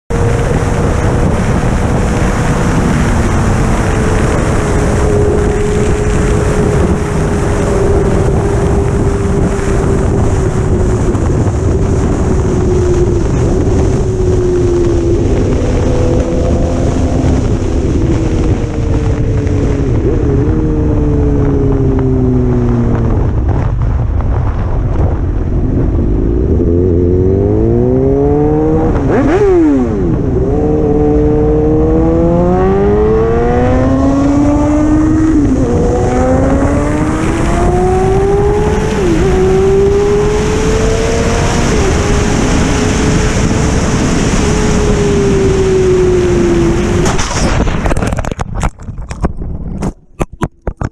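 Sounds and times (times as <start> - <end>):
motorcycle engine running: 0.1 - 50.9
wind rush on microphone: 0.1 - 50.9.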